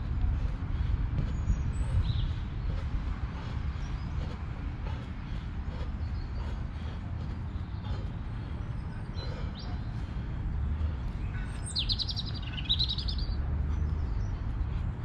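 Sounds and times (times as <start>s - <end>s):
steady low rumble: 0.0s - 15.0s
songbird trilling: 11.3s - 13.4s.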